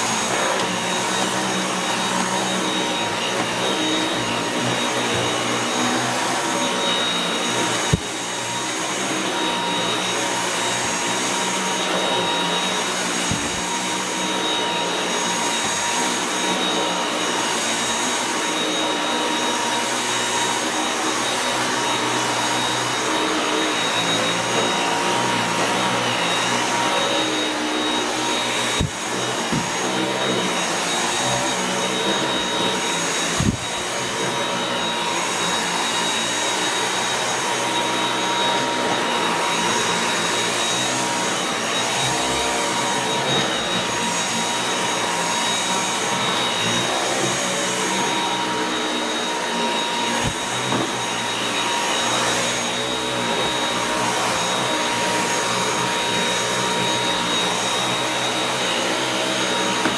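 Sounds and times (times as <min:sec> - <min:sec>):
vacuum cleaner motor whine: 0:00.0 - 0:59.9.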